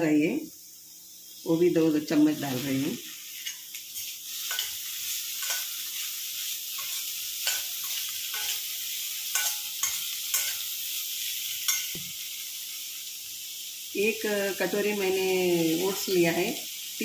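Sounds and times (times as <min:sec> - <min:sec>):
vegetables sizzling in hot oil: 0:00.0 - 0:17.0
spatula scraping a pan: 0:03.1 - 0:12.0.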